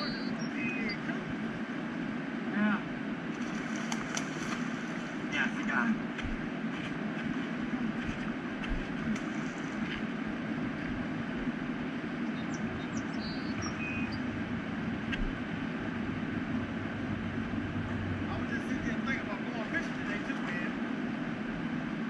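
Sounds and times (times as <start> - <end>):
faint high chirps: 0.0 - 1.0, 12.3 - 14.2
river rushing: 0.6 - 12.2.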